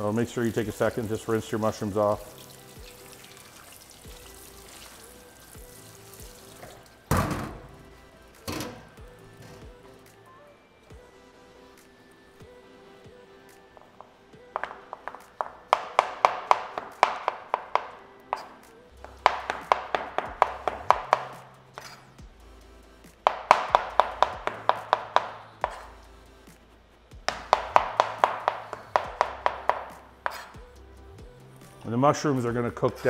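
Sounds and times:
background music with bass: 4.0s - 10.3s, 10.9s - 33.0s
knife slicing on cutting board: 21.8s - 22.1s, 30.3s - 30.6s.

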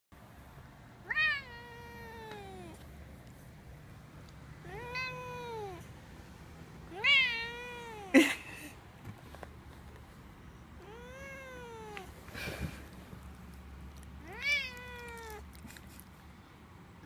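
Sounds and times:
cat meowing: 1.0s - 2.8s, 4.6s - 5.9s, 6.9s - 8.2s, 10.8s - 12.2s, 14.2s - 15.6s.

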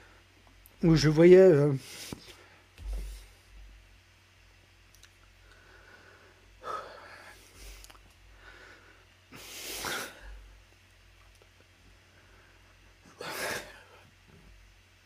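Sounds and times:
man breathing and sniffing: 1.8s - 3.7s, 5.4s - 10.7s.

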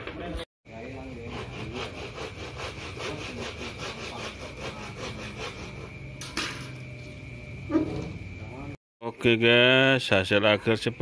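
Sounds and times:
hand saw cutting wood: 1.2s - 6.0s.

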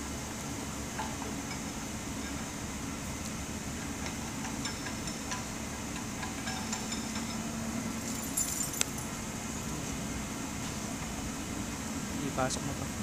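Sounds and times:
low workshop hum: 0.0s - 13.0s
metal chains clinking: 8.0s - 9.2s.

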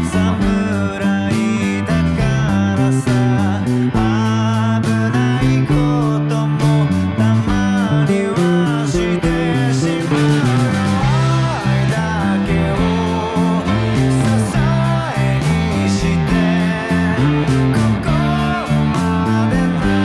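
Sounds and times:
electric bass: 0.0s - 20.0s
rock band music: 0.0s - 20.0s.

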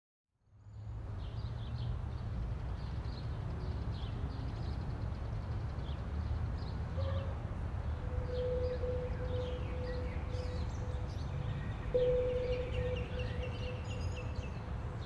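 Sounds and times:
bird chirps: 8.1s - 14.7s.

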